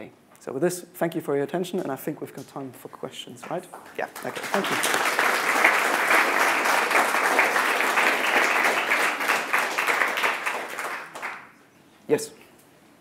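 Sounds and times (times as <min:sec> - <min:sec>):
audience applauding: 0:03.5 - 0:11.6.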